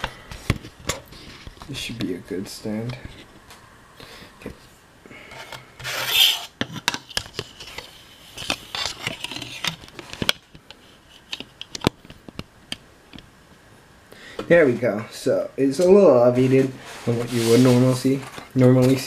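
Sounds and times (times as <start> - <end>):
camera rubbing on wooden desk: 5.8 - 6.5.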